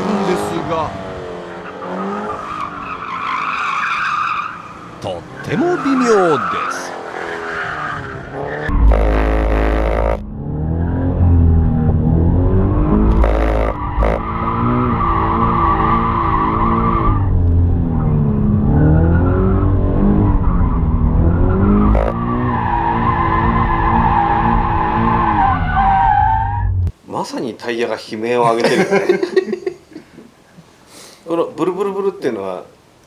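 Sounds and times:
tyres squealing: 1.6 - 8.7
car engine revving: 4.5 - 26.9.

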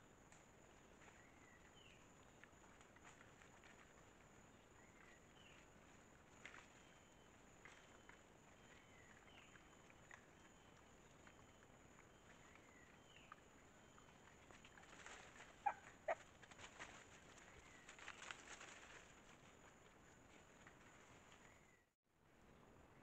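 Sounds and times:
rustling in dry leaves: 14.2 - 21.6.

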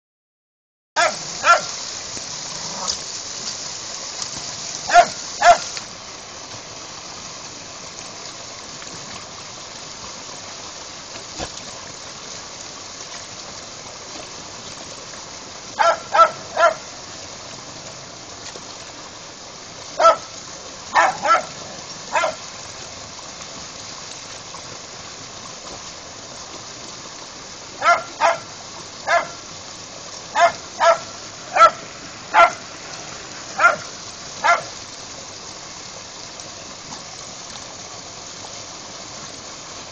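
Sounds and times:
dog yapping: 1.0 - 1.7, 4.9 - 5.7, 15.8 - 16.8, 20.0 - 20.3, 20.9 - 22.4, 27.8 - 28.5, 29.1 - 29.4, 30.4 - 31.8, 32.4 - 32.6, 33.6 - 34.7
water gushing into stream: 1.0 - 39.9.

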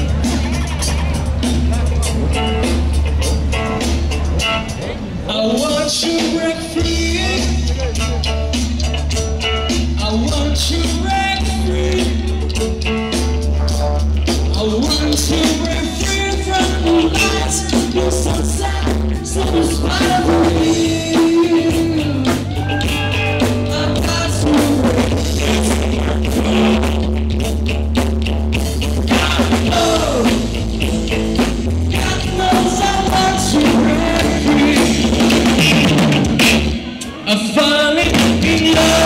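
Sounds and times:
bass guitar: 0.0 - 39.0
drums: 0.0 - 39.0
electric guitar: 0.0 - 39.0
person singing: 14.4 - 26.9, 29.1 - 30.5, 31.9 - 39.0.

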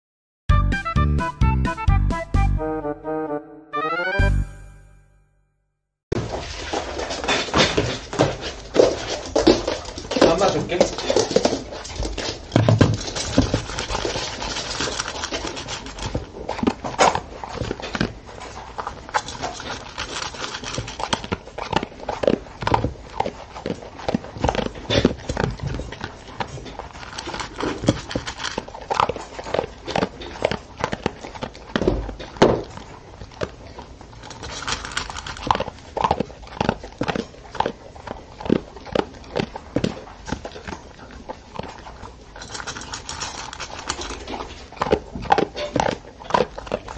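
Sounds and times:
dog crunching dry kibble: 6.2 - 46.9
kibble clinking on metal bowl: 42.4 - 46.5.

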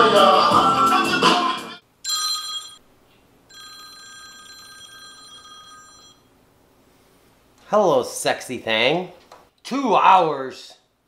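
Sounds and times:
background music with a beat: 0.0 - 1.8
smartphone electronic ringtone: 2.1 - 2.8, 3.5 - 6.3.

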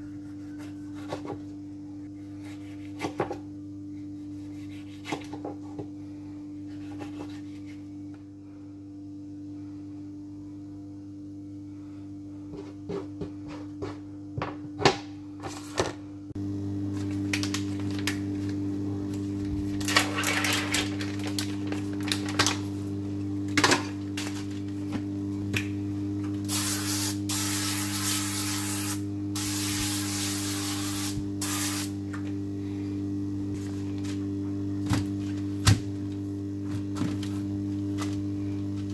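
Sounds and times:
baking parchment rustling: 19.3 - 22.9.

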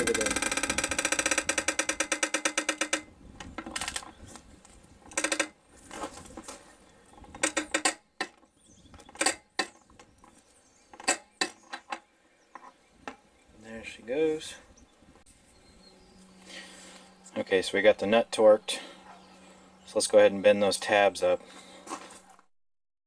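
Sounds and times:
torque wrench ratchet clicking: 0.0 - 3.1.

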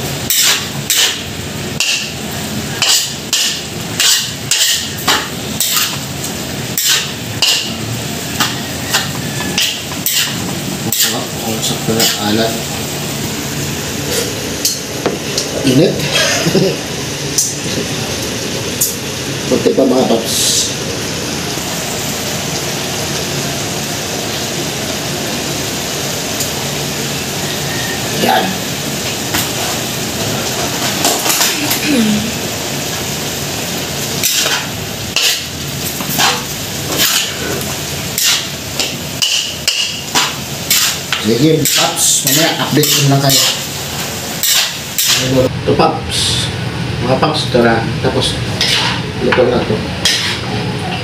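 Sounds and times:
food sizzling in a wok: 0.0 - 45.5, 48.4 - 51.0
metal spatula scraping a wok: 0.3 - 1.2, 2.8 - 6.0, 6.8 - 7.8, 8.4 - 11.3, 34.2 - 35.5, 36.1 - 37.4, 38.1 - 38.6, 39.2 - 41.0, 41.6 - 43.7, 44.4 - 45.3, 48.6 - 49.0, 50.0 - 50.5.

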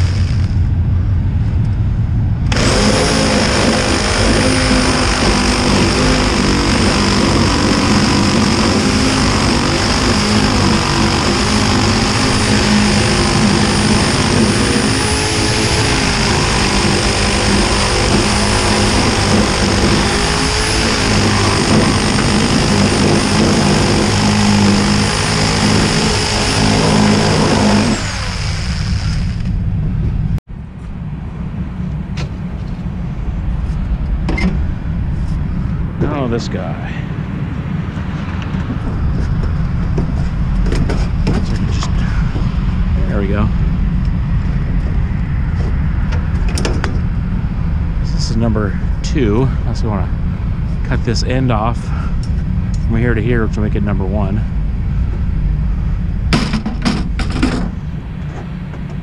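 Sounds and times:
reciprocating saw cutting metal: 2.5 - 29.6.

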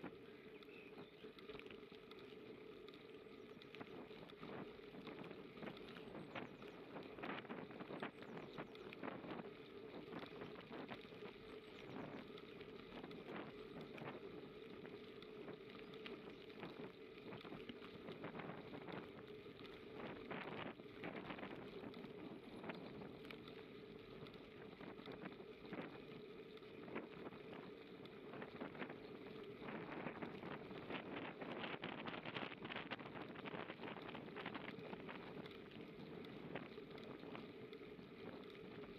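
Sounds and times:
bicycle tyres rolling: 0.0 - 38.9
wind on microphone: 26.8 - 37.5.

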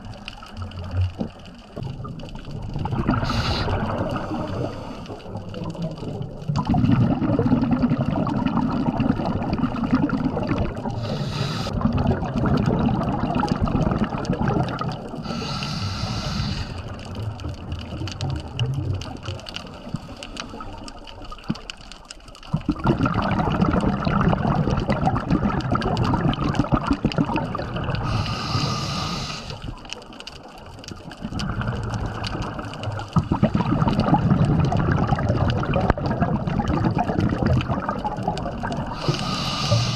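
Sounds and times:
bubbling exhalations underwater: 0.0 - 21.6, 22.5 - 29.8, 31.0 - 39.9
hissing in-breath through regulator: 3.1 - 5.6, 10.8 - 11.8, 15.2 - 17.1, 19.8 - 21.0, 27.9 - 29.8, 38.9 - 39.9.

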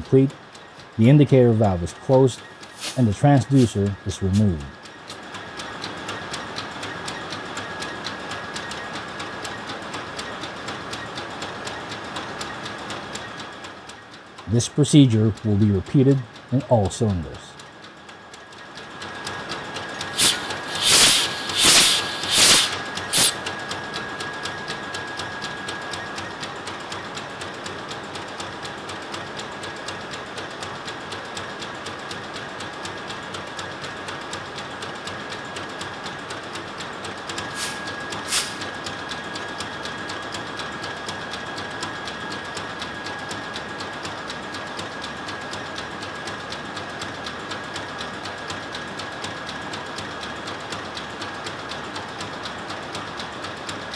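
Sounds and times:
diesel engine rhythmic clatter: 0.0 - 53.9
hissing puffs of gas: 2.6 - 3.8, 20.1 - 23.4, 37.5 - 38.7.

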